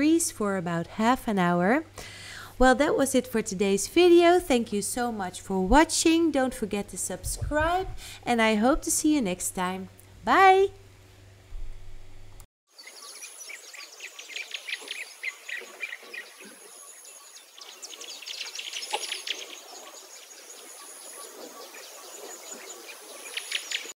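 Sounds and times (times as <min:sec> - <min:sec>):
birds chirping: 0:12.8 - 0:23.9.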